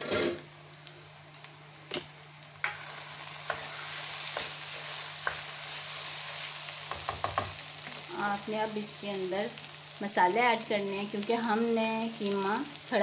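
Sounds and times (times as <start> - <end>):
minced meat sizzling in oil: 0.0 - 13.0
spatula knocking against pan: 6.9 - 7.6.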